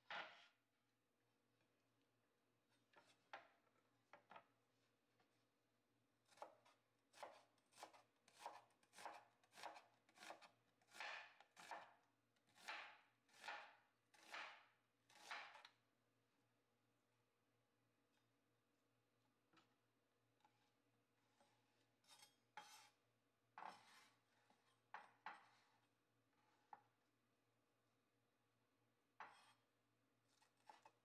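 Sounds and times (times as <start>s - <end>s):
knife slicing onion on cutting board: 6.2s - 11.9s, 12.5s - 15.7s, 21.4s - 23.0s, 23.6s - 24.6s, 29.2s - 29.7s, 30.3s - 31.0s.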